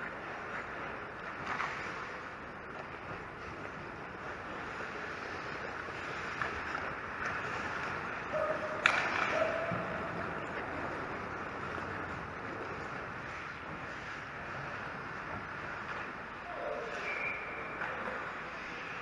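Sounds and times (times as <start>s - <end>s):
skate blades scraping on ice: 0.0s - 19.0s
sharp crack: 8.8s - 9.8s.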